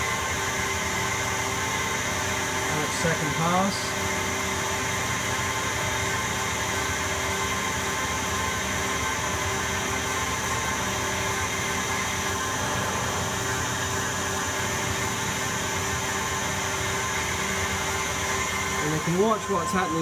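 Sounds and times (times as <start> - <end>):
lathe machine hum: 0.0 - 20.0
steady high tones: 12.3 - 20.0.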